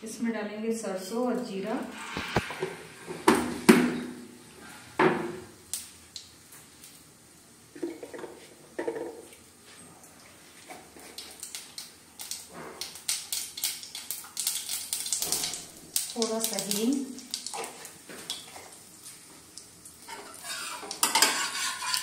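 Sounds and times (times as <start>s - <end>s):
seeds spluttering in hot oil: 10.7s - 22.0s
steel utensils clattering: 20.1s - 22.0s.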